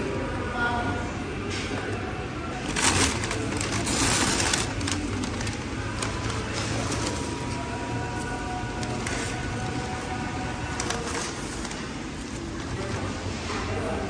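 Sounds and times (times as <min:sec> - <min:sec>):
paper bag rustling: 0:02.5 - 0:13.8.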